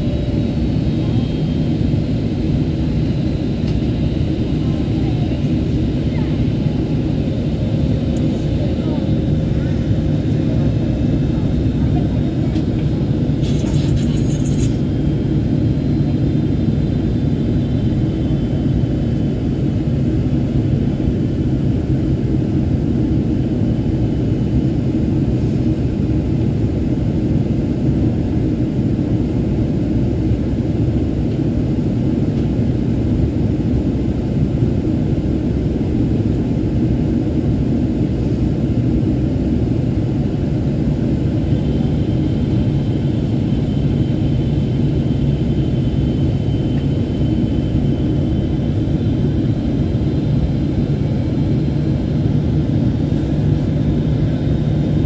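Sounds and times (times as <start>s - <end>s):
airplane cabin rumble: 0.0s - 55.0s.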